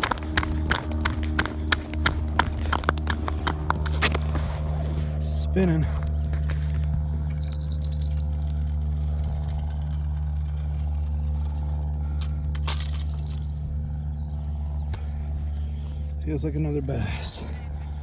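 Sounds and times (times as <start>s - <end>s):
low droning hum: 0.0s - 18.0s
light metallic clinks: 7.4s - 9.0s.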